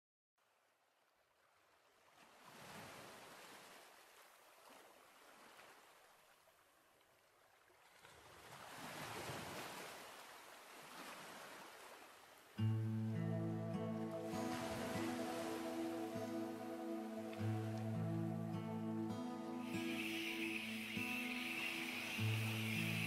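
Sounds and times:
music: 12.6 - 23.0
ocean waves washing in: 12.9 - 23.0.

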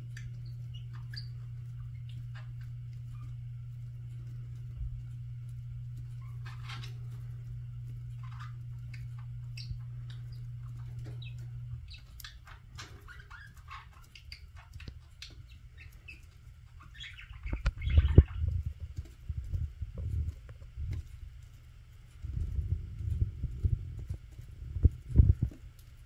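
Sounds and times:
low steady hum: 0.0 - 26.0
beak pecking clicks: 8.2 - 18.4.

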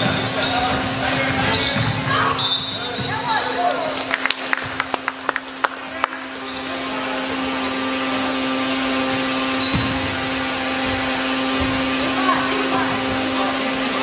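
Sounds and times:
basketball bouncing on gym floor: 0.0 - 3.8, 9.1 - 10.2.

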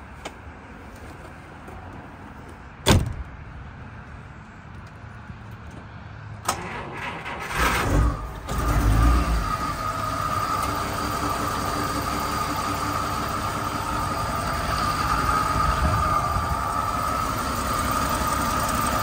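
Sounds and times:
engine cranking and idling: 6.4 - 19.0.

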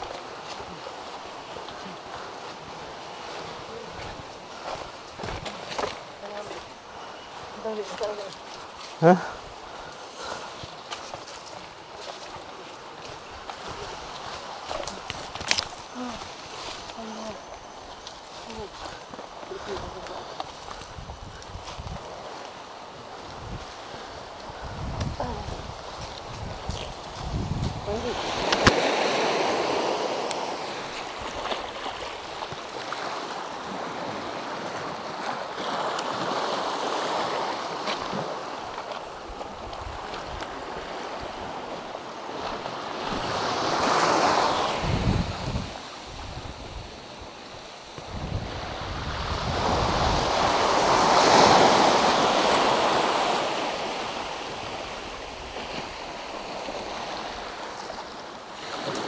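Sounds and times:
small waves washing onto shore: 0.0 - 59.0
wind buffeting microphone: 11.8 - 59.0.

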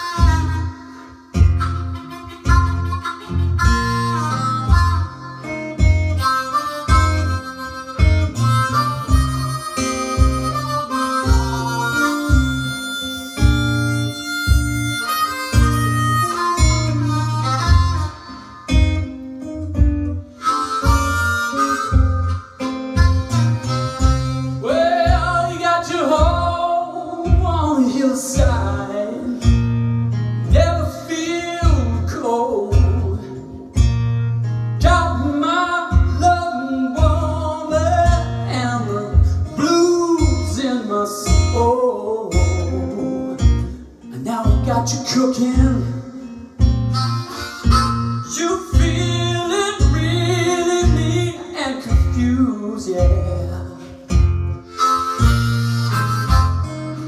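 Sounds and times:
harmonica playing bent notes: 0.0 - 26.5, 45.8 - 51.4, 53.8 - 57.0
acoustic guitar bass beat: 0.0 - 57.0.

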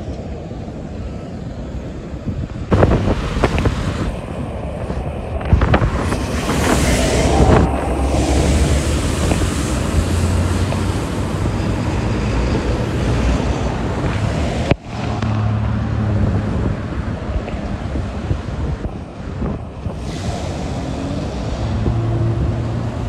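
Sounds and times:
trucks and cars driving past: 0.0 - 23.0
wind buffeting the microphone: 0.0 - 23.0.

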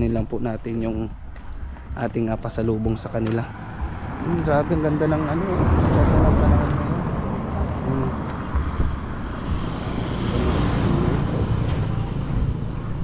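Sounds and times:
wind buffeting microphone: 5.6 - 13.0.

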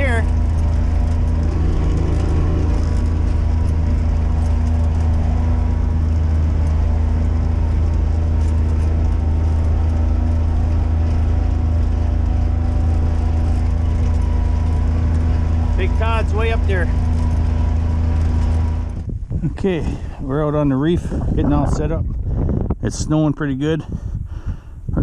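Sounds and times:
vehicle engine droning: 0.0 - 24.6.

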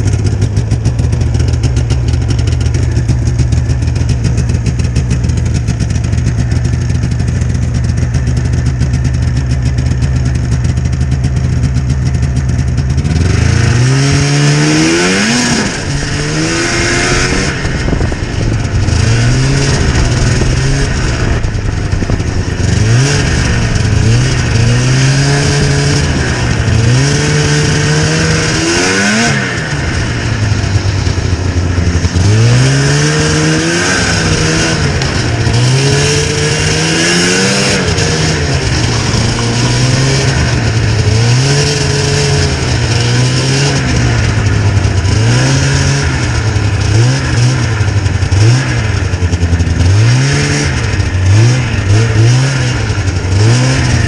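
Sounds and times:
snowmobile engine idling and revving: 0.0 - 54.0.

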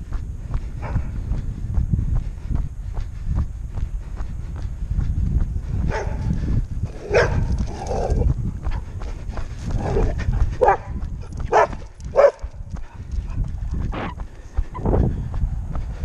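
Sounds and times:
steady low rumble: 0.0 - 16.0
dog barking: 5.9 - 6.3, 7.0 - 7.5, 9.8 - 12.6.

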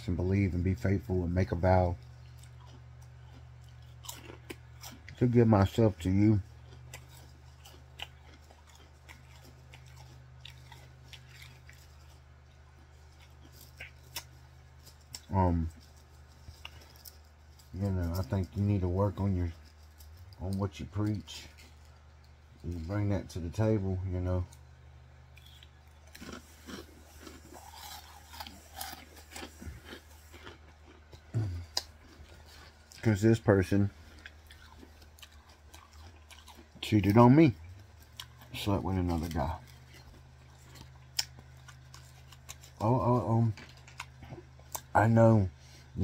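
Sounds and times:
steady low hum: 0.0 - 46.0
person chewing: 2.0 - 17.8, 24.5 - 33.2, 33.8 - 46.0.

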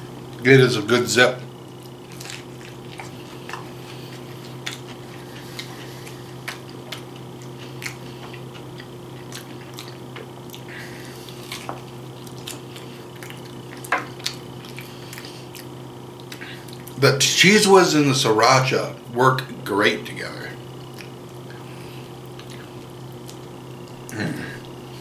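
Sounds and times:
steady low hum: 0.0 - 25.0
chewing crunches: 1.5 - 17.0, 20.7 - 25.0.

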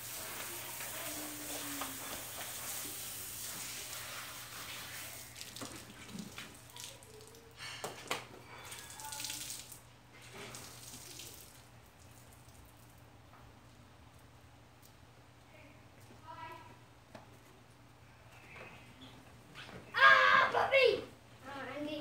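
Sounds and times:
hose spraying water on car: 0.0 - 6.8.

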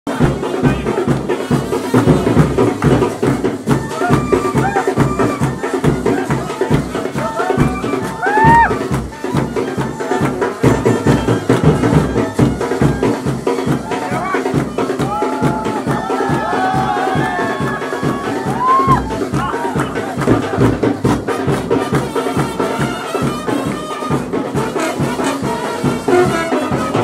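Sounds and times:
fast drum beat: 0.1 - 27.0.

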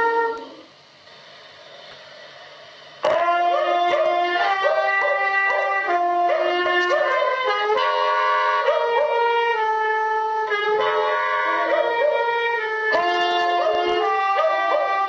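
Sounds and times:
dog howling through speakers: 0.0 - 0.7, 3.0 - 7.6, 11.4 - 15.0.

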